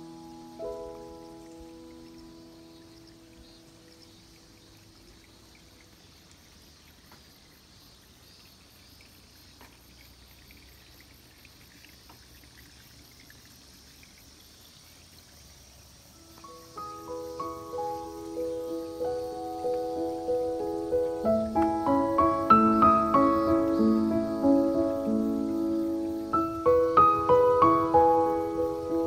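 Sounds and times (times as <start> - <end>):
background music: 0.0 - 3.9, 16.2 - 29.0
insects chirping: 0.0 - 29.0
running water: 0.0 - 29.0.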